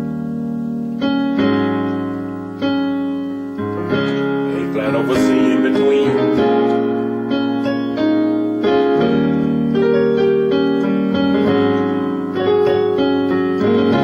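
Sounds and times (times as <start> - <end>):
digital piano chords with melody: 0.0 - 14.0.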